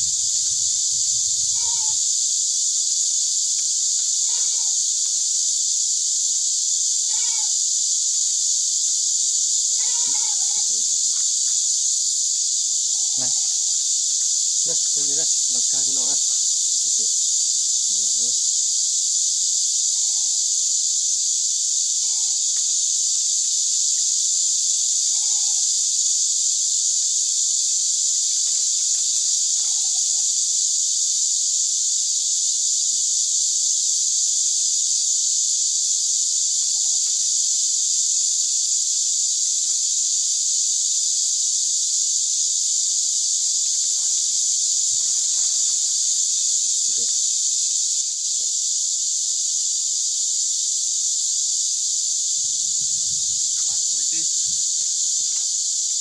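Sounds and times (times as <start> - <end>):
insects chorus: 0.0 - 56.0.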